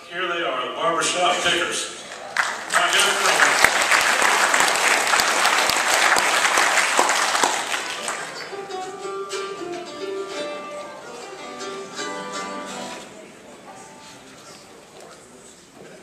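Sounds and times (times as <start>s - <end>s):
audience applause: 2.1s - 8.7s
mandolin and guitar plucking: 8.0s - 14.4s.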